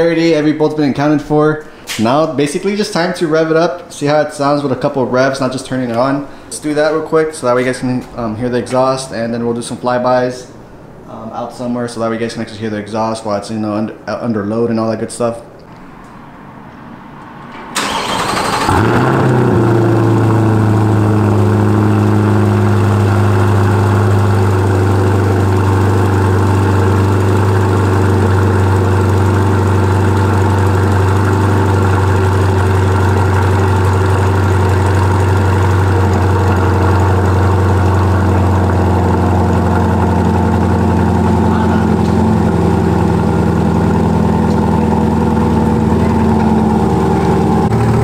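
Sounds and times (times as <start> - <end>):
car engine starting and idling: 15.8 - 48.0.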